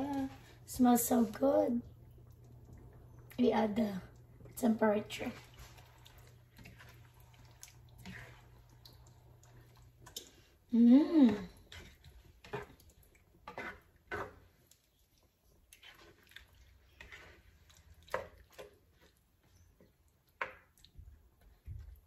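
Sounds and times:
wet squishes of sauce: 0.0 - 22.0
spatula scraping pan: 4.5 - 8.8, 9.6 - 14.8, 15.8 - 19.6.

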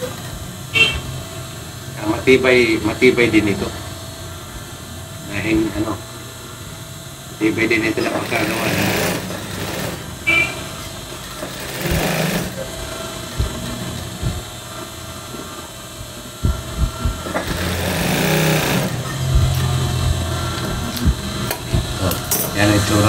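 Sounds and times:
sewing machine stitching: 8.0 - 10.1, 11.2 - 12.6, 17.3 - 19.7.

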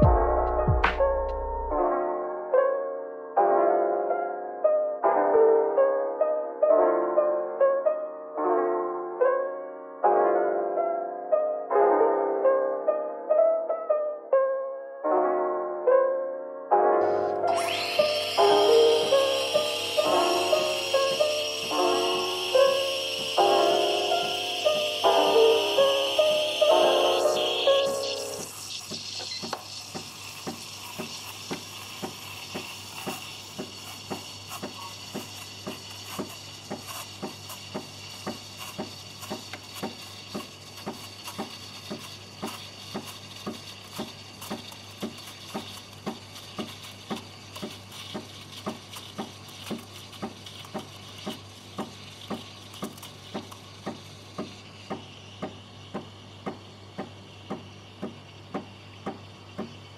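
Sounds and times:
steam wand hissing in milk: 0.0 - 1.6, 17.0 - 59.9
pump clicking: 17.4 - 59.8.

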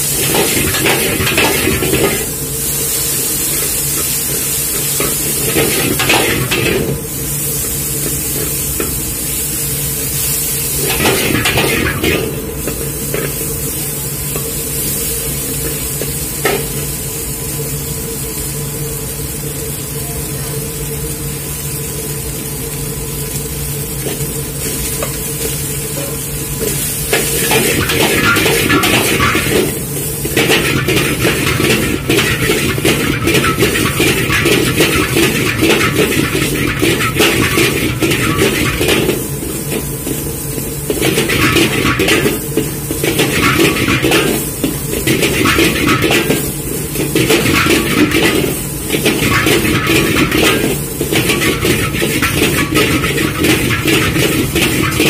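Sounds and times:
food sizzling: 0.0 - 55.0
steady hum: 22.7 - 55.0
metal ladle scraping a wok: 26.0 - 55.0.

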